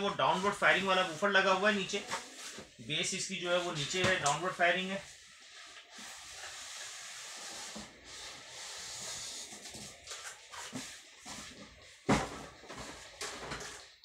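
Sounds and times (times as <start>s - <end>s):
cardboard scraping on styrofoam: 5.0s - 13.9s.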